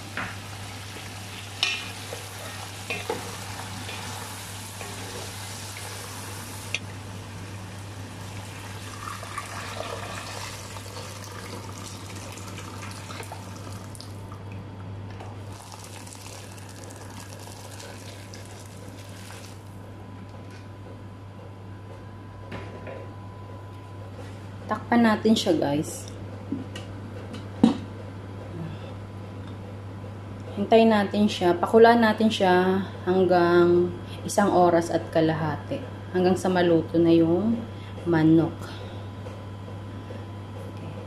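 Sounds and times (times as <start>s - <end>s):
pot boiling: 0.0s - 14.4s, 15.3s - 19.8s
water pouring into pot: 8.2s - 14.1s, 15.5s - 19.7s.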